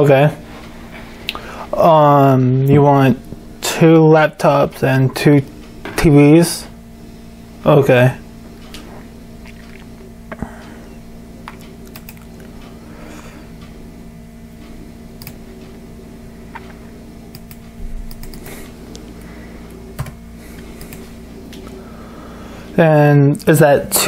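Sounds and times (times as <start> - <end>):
steady low hum: 0.0 - 24.0
computer mouse clicks: 11.5 - 12.3, 15.2 - 15.4, 17.3 - 18.5, 20.8 - 21.6
laptop keys typing: 11.9 - 12.3, 15.2 - 15.4, 17.3 - 18.5, 20.0 - 21.1.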